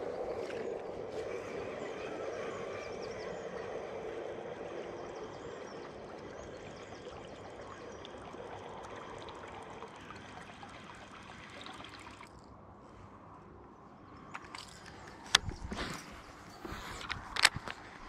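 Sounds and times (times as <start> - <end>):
lure gurgling and splashing on water: 1.8 - 12.6.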